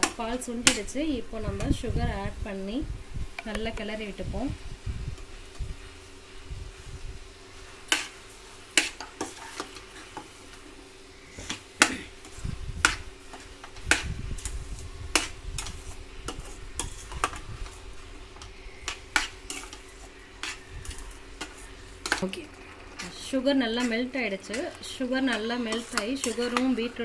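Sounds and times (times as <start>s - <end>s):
metal spoon scraping a pan: 7.8s - 10.3s, 12.2s - 27.0s.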